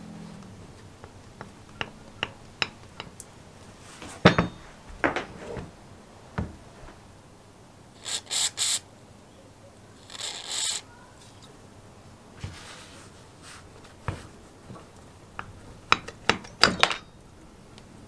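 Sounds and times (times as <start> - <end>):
metal parts knocking: 1.0 - 3.2, 4.2 - 4.8, 15.8 - 17.2
aerosol spray hissing: 8.0 - 8.8.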